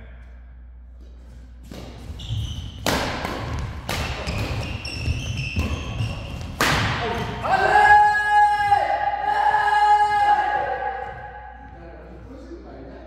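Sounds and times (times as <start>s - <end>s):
rackets striking shuttlecock: 1.6s - 7.4s.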